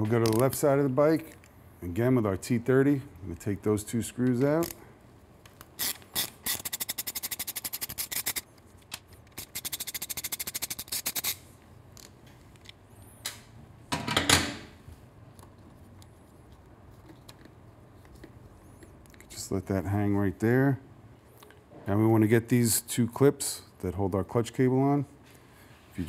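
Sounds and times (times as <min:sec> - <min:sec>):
hand ratchet clicking: 0:05.8 - 0:08.4, 0:09.3 - 0:11.4.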